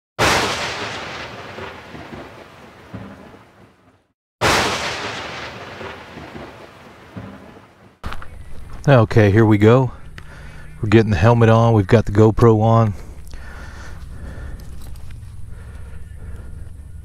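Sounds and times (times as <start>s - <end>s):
loud booms: 0.2s - 3.8s, 4.4s - 8.0s.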